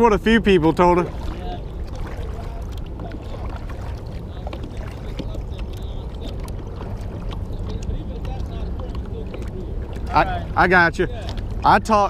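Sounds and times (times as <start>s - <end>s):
steady low rumble: 0.0s - 12.0s
paddle splashing through water: 0.6s - 12.0s
water dripping: 11.0s - 12.0s.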